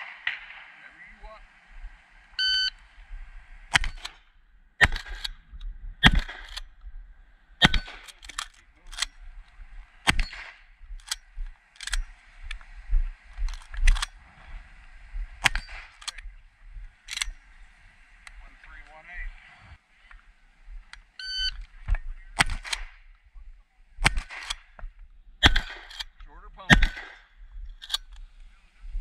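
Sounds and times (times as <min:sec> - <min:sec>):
shotgun blasts: 0:00.0 - 0:01.0, 0:03.7 - 0:04.2, 0:04.8 - 0:05.4, 0:06.0 - 0:06.7, 0:07.6 - 0:08.2, 0:10.0 - 0:10.7, 0:22.4 - 0:23.0, 0:24.0 - 0:24.7, 0:25.4 - 0:27.3
sharp cracks: 0:00.0 - 0:02.0, 0:03.7 - 0:06.8, 0:07.6 - 0:09.2, 0:10.0 - 0:12.6, 0:15.4 - 0:16.2, 0:22.4 - 0:23.1, 0:24.0 - 0:28.1.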